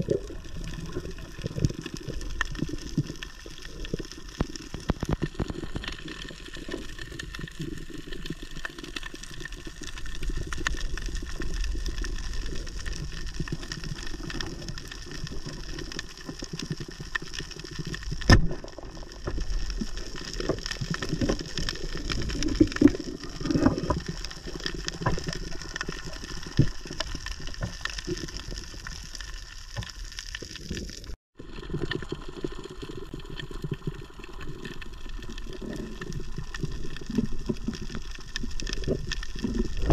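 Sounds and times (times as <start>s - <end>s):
underwater crackle of fine clicks: 0.1s - 31.1s
low muffled underwater rumble: 38.8s - 39.9s.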